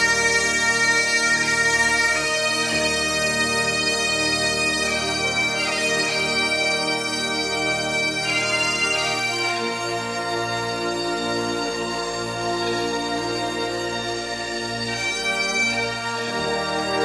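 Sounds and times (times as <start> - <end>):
bagpipe music: 0.0 - 17.0.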